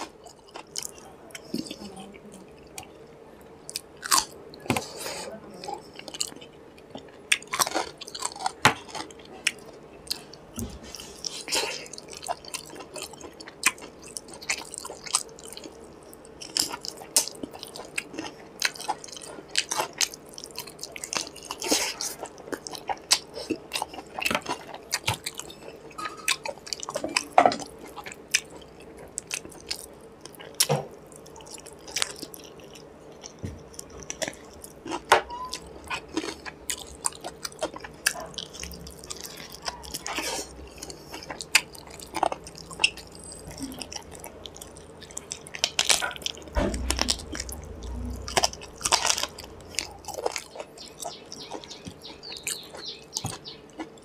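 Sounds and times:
chewing and lip smacking: 0:05.6 - 0:54.0.

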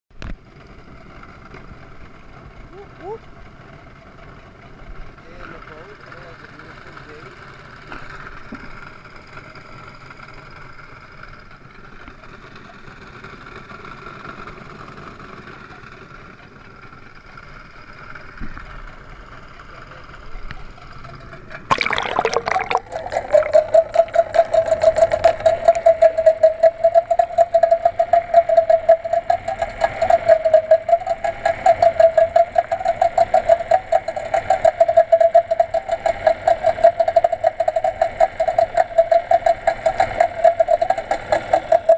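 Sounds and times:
muffled camera noise at water surface: 0:21.7 - 0:26.1
wavering underwater hum: 0:21.7 - 0:41.9.

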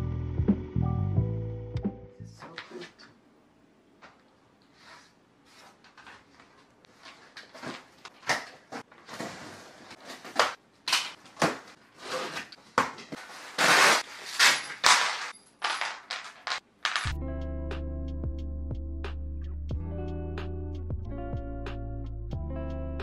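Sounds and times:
cardboard ripping: 0:11.4 - 0:15.3
cardboard box scraping and rustling: 0:13.2 - 0:14.5.

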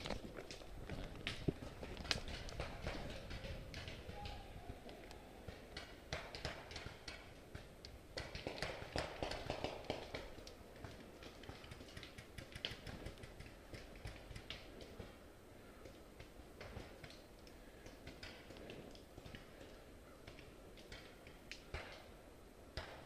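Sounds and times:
footsteps on forest floor: 0:00.0 - 0:02.4
gear clicks and taps: 0:05.0 - 0:15.1.

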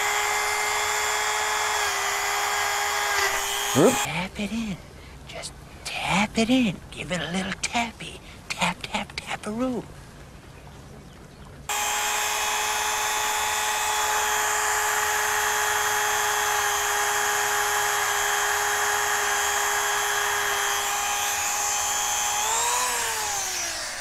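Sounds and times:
rotary tool whining: 0:00.0 - 0:04.1, 0:11.7 - 0:24.0.

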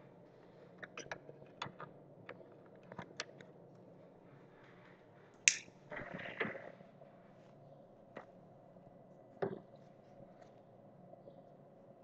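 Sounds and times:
light sharp clicks and taps: 0:05.5 - 0:05.7.

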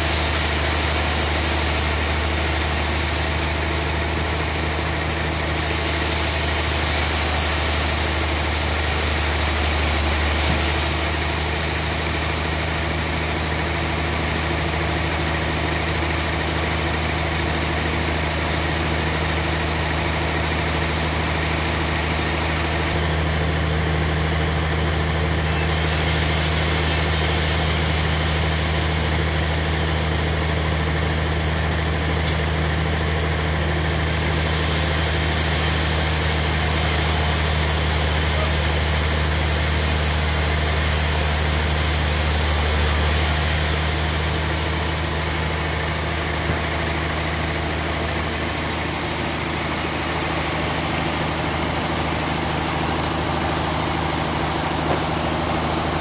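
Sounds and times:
saw blade cutting hiss: 0:00.0 - 0:12.2, 0:25.4 - 0:29.6, 0:33.8 - 0:44.0
bandsaw mill droning: 0:00.0 - 0:56.0.

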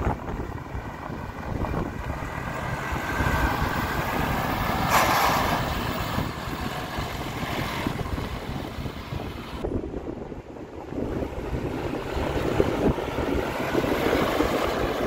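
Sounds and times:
tractor diesel engine driving past: 0:00.4 - 0:09.6.

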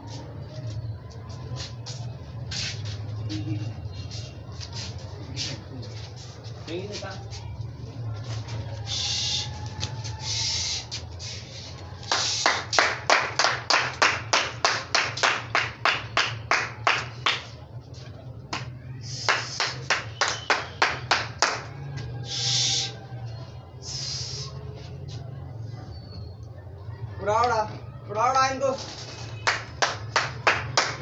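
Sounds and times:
rapid hand clapping: 0:12.0 - 0:17.6, 0:18.4 - 0:21.8, 0:29.4 - 0:31.0
short hissing sounds: 0:23.8 - 0:24.6.

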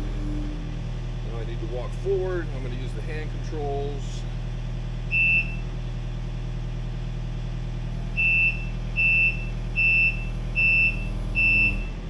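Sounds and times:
excavator diesel engine running: 0:00.0 - 0:12.0
travel alarm beeping: 0:05.1 - 0:05.6, 0:08.2 - 0:12.0.

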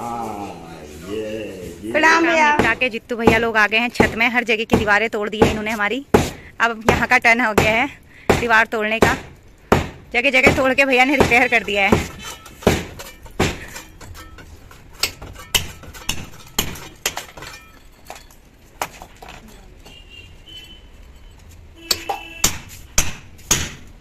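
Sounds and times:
hammer striking steel chisel: 0:09.1 - 0:18.2, 0:21.8 - 0:23.9.

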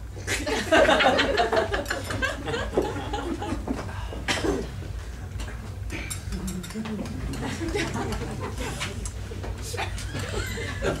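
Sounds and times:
audience laughing: 0:00.3 - 0:03.8, 0:07.3 - 0:09.0, 0:09.6 - 0:11.0.

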